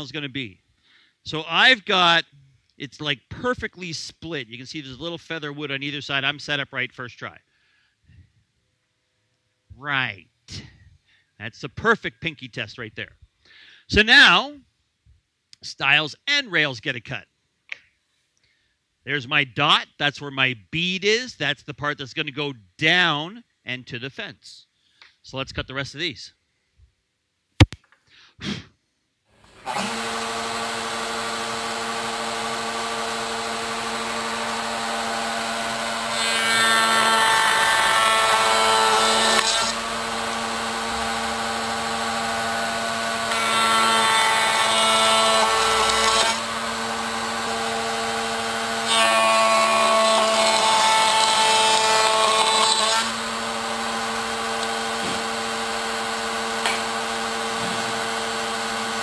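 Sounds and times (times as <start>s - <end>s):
router cutting boards: 29.4s - 59.0s
router whining: 29.4s - 59.0s.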